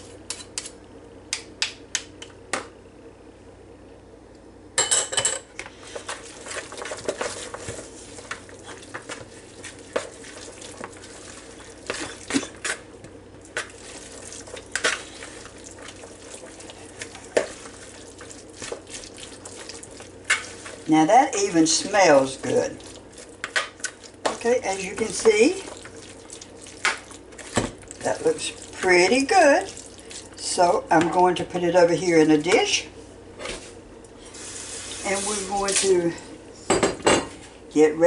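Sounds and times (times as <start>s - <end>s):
spoon stirring thick salad: 5.9s - 12.8s, 13.4s - 30.6s.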